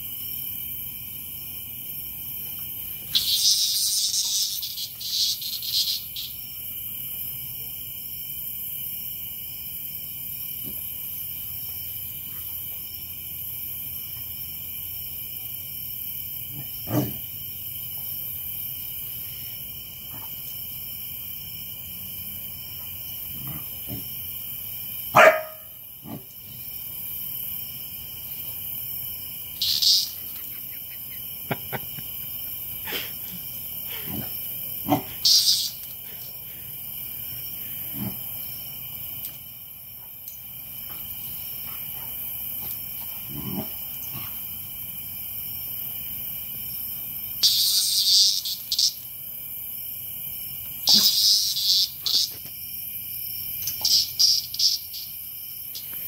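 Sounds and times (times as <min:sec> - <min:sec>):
chorus of night insects: 0:00.0 - 0:56.0
cicada buzzing: 0:00.0 - 0:56.0
puppy barking: 0:25.1 - 0:25.7.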